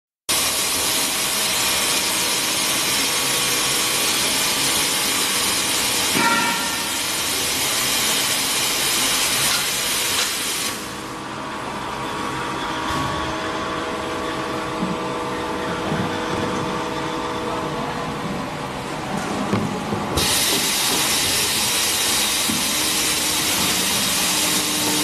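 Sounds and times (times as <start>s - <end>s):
pneumatic machine running: 0.3s - 11.2s, 19.2s - 25.0s
compressed air hissing: 20.2s - 25.0s.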